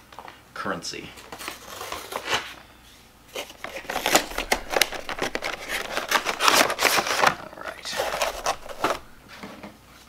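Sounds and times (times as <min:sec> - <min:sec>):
cardboard and plastic crinkling: 0:01.2 - 0:02.6, 0:03.2 - 0:09.4.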